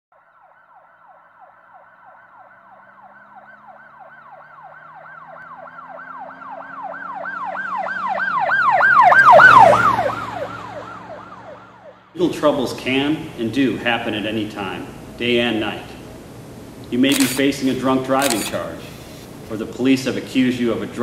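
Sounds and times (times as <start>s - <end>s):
police siren yelping: 0.2s - 12.0s
engine and road noise: 1.6s - 12.2s, 15.9s - 19.6s.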